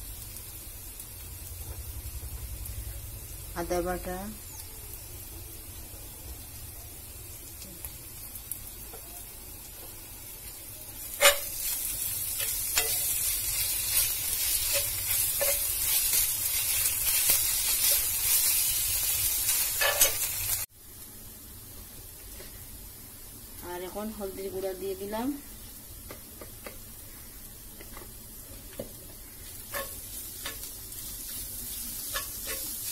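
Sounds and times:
onions sizzling in oil: 0:00.0 - 0:32.9
spoon scraping and clinking on pan: 0:11.2 - 0:11.8, 0:12.4 - 0:13.2, 0:14.6 - 0:15.9, 0:19.8 - 0:20.3, 0:29.7 - 0:30.7, 0:32.1 - 0:32.9.

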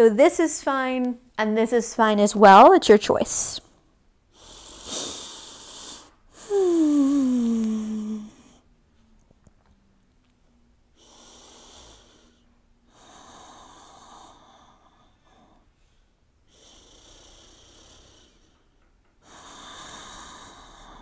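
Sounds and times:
woman breathing slowly: 0:04.3 - 0:08.7, 0:10.8 - 0:21.0.

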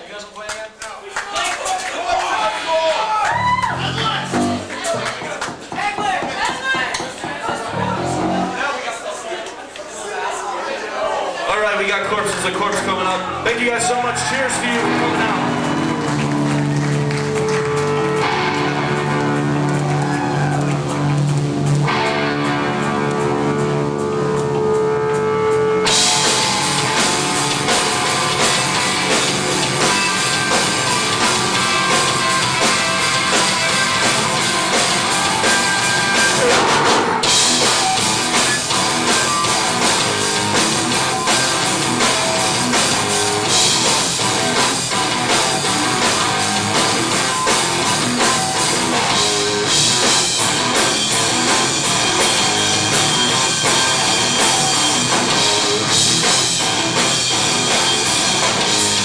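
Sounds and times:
heavy rock band playing: 0:03.3 - 0:08.8, 0:12.0 - 0:59.0
lone electric guitar: 0:07.6 - 0:08.6, 0:14.3 - 0:59.0.

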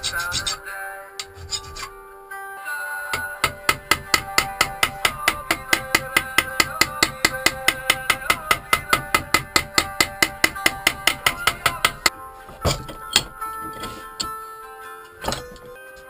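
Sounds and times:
hammer peening metal rivet: 0:01.2 - 0:01.9, 0:03.2 - 0:14.3.

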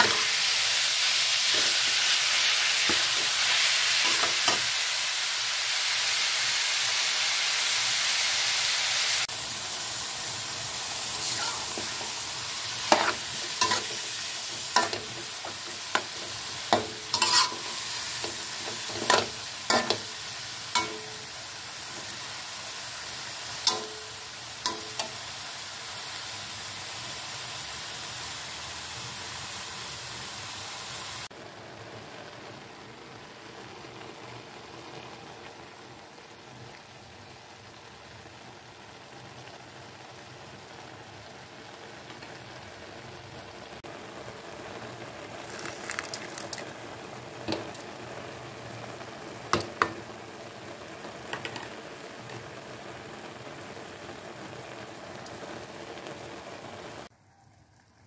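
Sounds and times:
meat sizzling in a wok: 0:00.0 - 0:58.0
metal spatula clicking on pan: 0:23.7 - 0:24.1.

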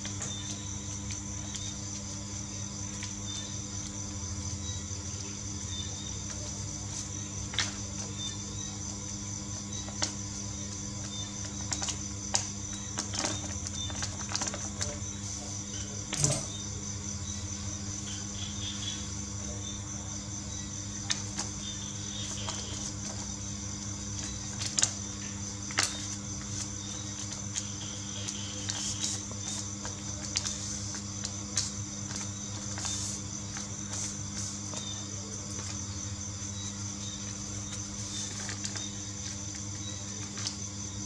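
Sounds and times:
steady background hum: 0:00.0 - 0:41.0
paper being folded and creased: 0:25.7 - 0:35.8, 0:37.5 - 0:39.4.

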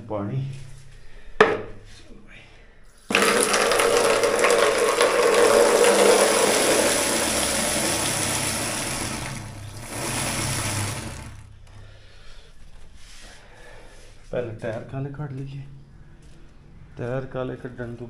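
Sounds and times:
tap water pouring into bucket: 0:03.1 - 0:11.5.

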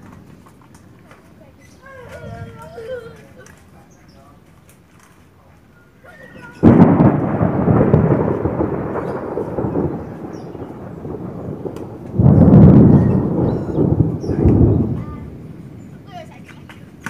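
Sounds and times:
thunderclaps: 0:00.0 - 0:03.0, 0:06.3 - 0:17.0.

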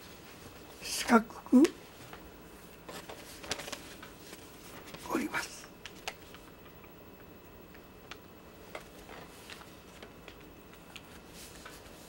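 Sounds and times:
paper rustling: 0:02.9 - 0:06.8, 0:07.7 - 0:12.0
light paper ticks: 0:05.6 - 0:11.9.

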